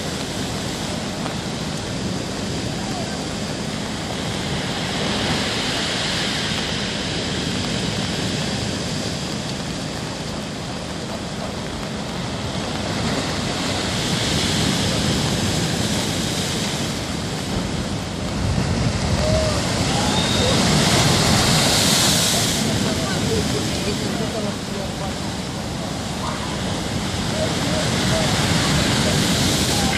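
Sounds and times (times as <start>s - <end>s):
waves breaking against a seawall: 0.0s - 29.9s.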